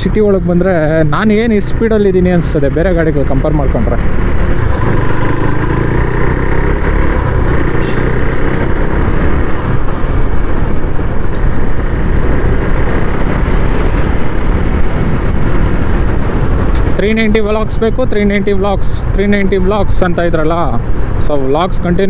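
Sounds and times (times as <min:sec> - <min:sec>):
wind rush and road noise: 0:00.0 - 0:22.0
motorcycle engine running: 0:02.3 - 0:17.0.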